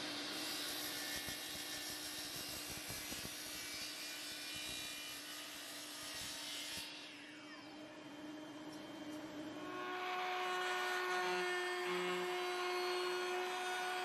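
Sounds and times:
saw blade cutting wood: 0.0 - 7.6
miter saw whining: 6.7 - 14.0.

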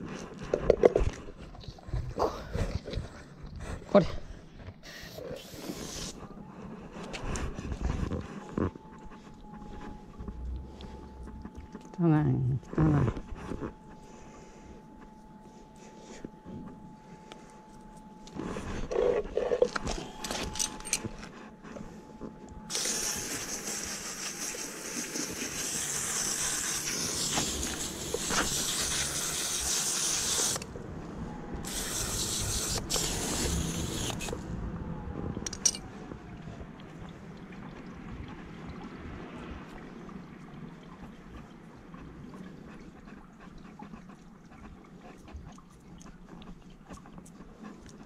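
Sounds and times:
scratchy scrubbing: 21.3 - 30.7, 31.6 - 34.4
water spraying from hose: 22.7 - 30.6, 31.6 - 34.4.

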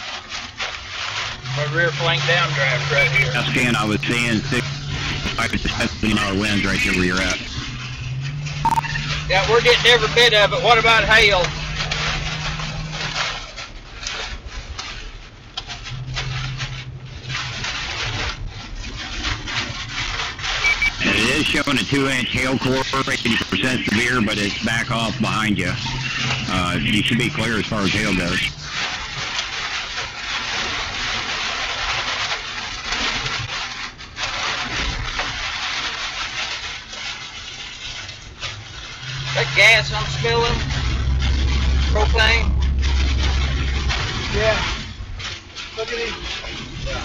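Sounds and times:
wind and rain buffeting vehicle: 0.0 - 47.0
low steady hum: 1.4 - 13.2, 20.6 - 28.7, 38.4 - 45.5.

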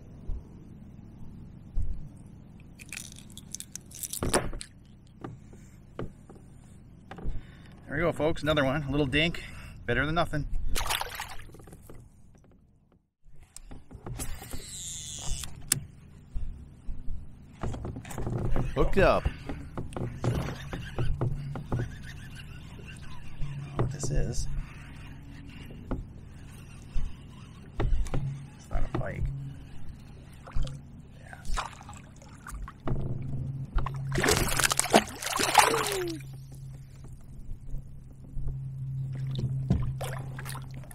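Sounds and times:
fishing reel whirring: 14.2 - 15.7
fish thrashing and splashing: 33.8 - 36.3.

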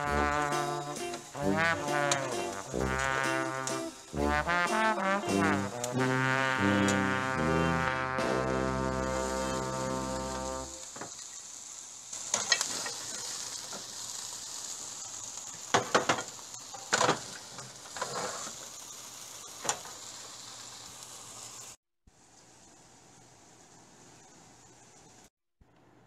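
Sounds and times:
omelet sizzling in frying pan: 0.0 - 25.3
spatula scraping pan: 18.0 - 18.6.

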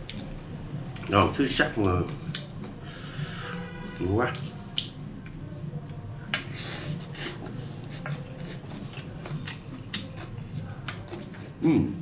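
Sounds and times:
chewing: 7.2 - 12.0.

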